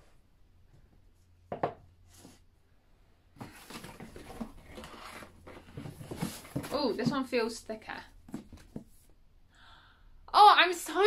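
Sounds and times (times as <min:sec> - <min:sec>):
book knocking on wooden shelf: 0:01.5 - 0:01.8
paper and cardboard rustling: 0:03.4 - 0:07.6.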